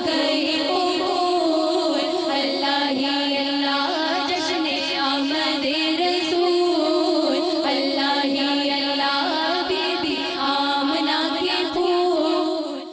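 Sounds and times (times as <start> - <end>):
devotional vocal music: 0.0 - 12.9.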